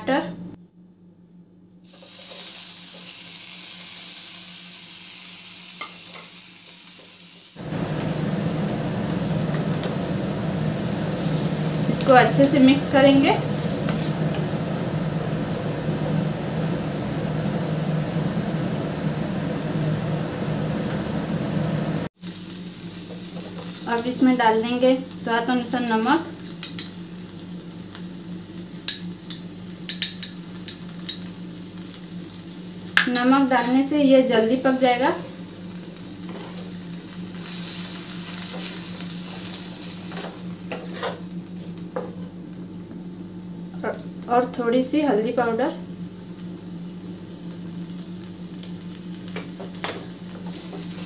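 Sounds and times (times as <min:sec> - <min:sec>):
tomatoes sizzling in hot oil: 0:01.8 - 0:20.2, 0:22.2 - 0:51.0
steady low hum: 0:07.6 - 0:22.1.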